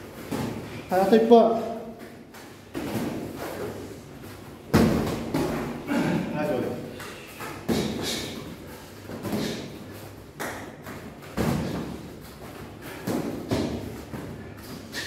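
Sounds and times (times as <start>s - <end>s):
boxing gloves thumping: 4.7s - 6.1s, 7.4s - 9.7s, 10.4s - 14.5s.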